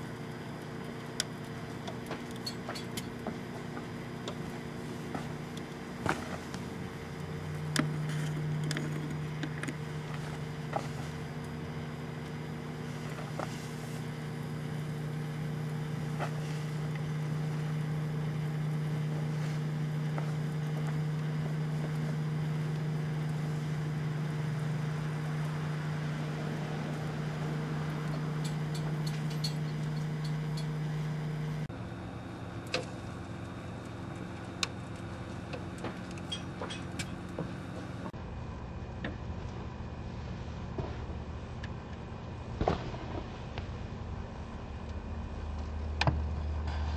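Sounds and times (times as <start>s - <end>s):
sharp crackles and pops: 0.0s - 31.1s, 40.7s - 46.8s
microwave oven humming: 0.0s - 46.9s.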